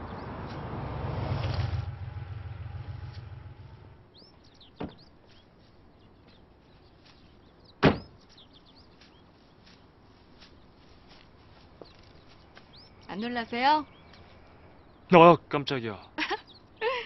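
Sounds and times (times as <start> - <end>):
low rumble: 0.0 - 5.1
small birds chirping: 0.0 - 17.0
car door slamming: 4.8 - 5.0, 7.8 - 8.1.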